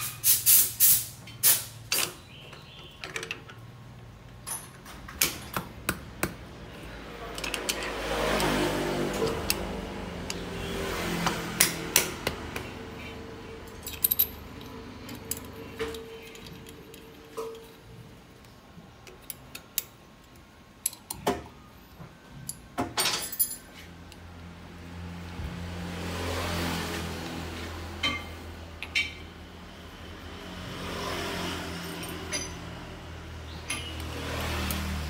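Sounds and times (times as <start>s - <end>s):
metal parts clicking and clinking: 1.4s - 5.6s, 7.3s - 9.6s, 13.6s - 21.3s, 22.4s - 24.3s, 31.8s - 32.8s.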